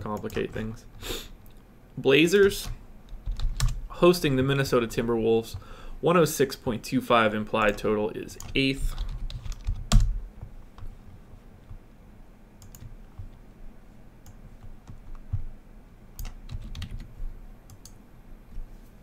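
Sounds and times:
computer keyboard keystrokes: 2.4 - 3.8, 8.4 - 10.1, 12.6 - 13.3, 16.2 - 17.1.

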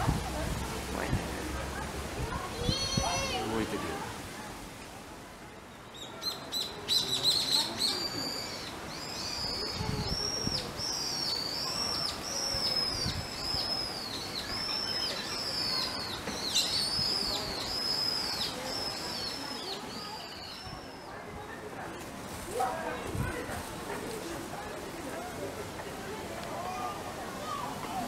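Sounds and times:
high chirping whistle calls: 5.9 - 21.2.

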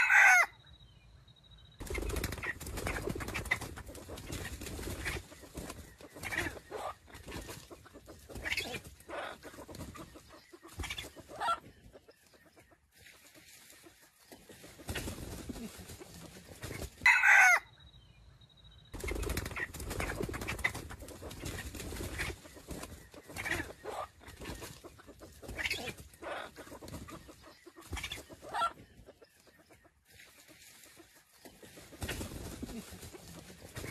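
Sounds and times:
rooster crowing: 0.0 - 0.6, 17.0 - 17.7
rooster clucking: 2.4 - 11.7, 19.5 - 28.8.

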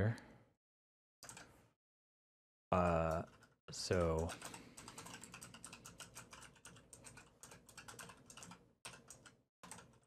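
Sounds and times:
fast keyboard typing: 1.2 - 1.5, 2.8 - 10.0.

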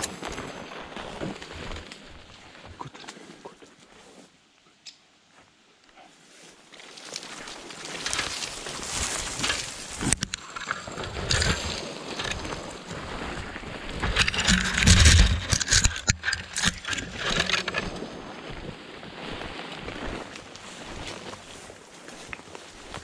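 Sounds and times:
footsteps through rustling vegetation: 0.0 - 4.4, 6.2 - 23.0.

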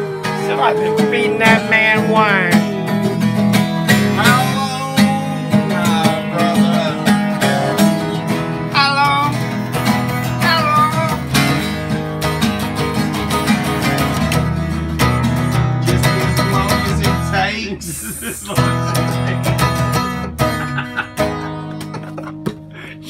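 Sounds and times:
wordless howling voices: 0.0 - 3.1, 15.9 - 19.6
acoustic guitars strummed: 0.0 - 23.0.

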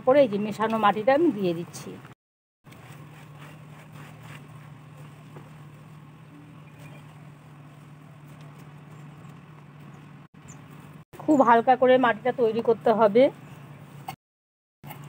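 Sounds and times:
low motor hum: 0.0 - 14.2
soil scratching in clay pot: 2.7 - 9.4.

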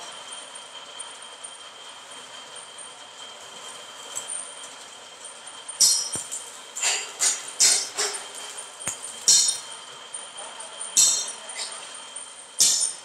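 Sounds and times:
arc welding crackle: 3.0 - 10.3, 11.0 - 13.0.

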